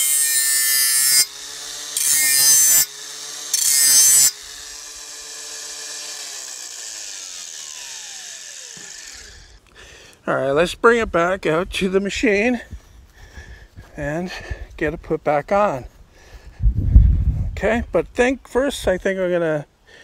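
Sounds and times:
grinder motor running freely: 0.0 - 9.6
angle grinder grinding steel: 0.0 - 9.7.

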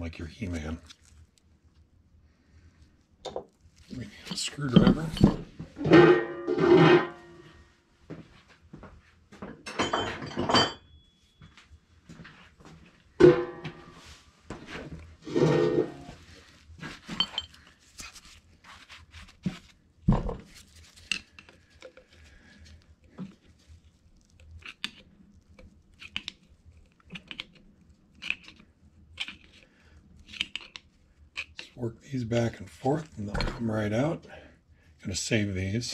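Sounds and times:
screwdriver scraping metal: 30.2 - 30.8.

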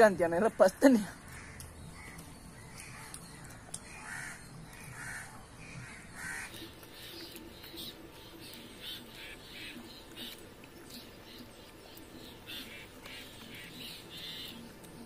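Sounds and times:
crows cawing: 1.3 - 6.8.

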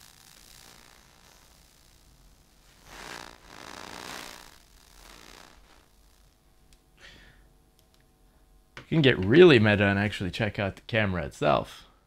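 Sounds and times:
hissy electromagnetic noise rushes: 0.0 - 6.6
faint steady hum: 0.0 - 12.0.

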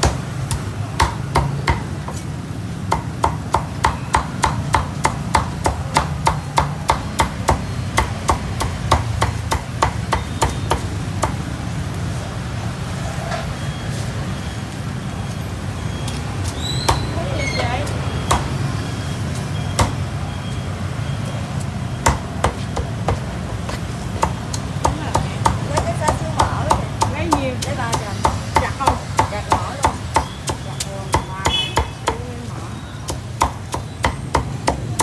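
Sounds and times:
street hum: 0.0 - 35.0
meat cleaver chopping: 2.8 - 11.4, 24.2 - 32.2, 33.0 - 35.0.

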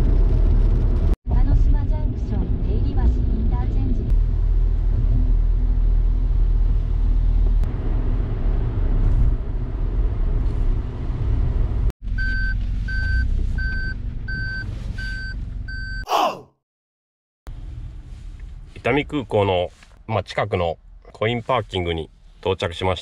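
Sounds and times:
car road and engine noise: 0.0 - 15.9, 17.5 - 20.1
reverse warning beeps: 12.2 - 16.0.

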